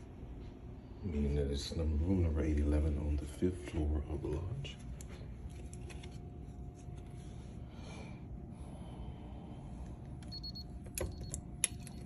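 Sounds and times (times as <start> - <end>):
faint electronic beep: 10.3 - 11.4.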